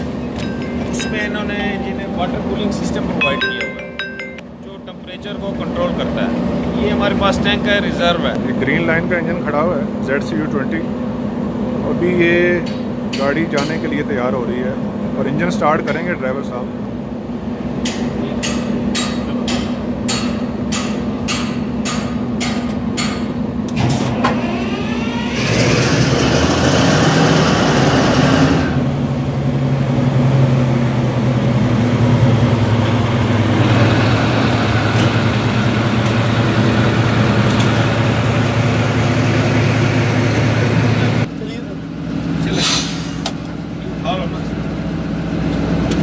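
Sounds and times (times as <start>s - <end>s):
rising whine: 0.0s - 4.6s, 24.1s - 41.3s
diesel engine starting and idling: 23.6s - 46.0s.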